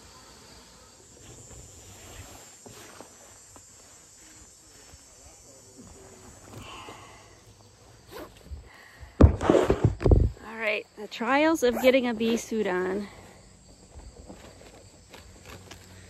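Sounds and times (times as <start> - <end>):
fabric rustling: 1.2 - 5.1.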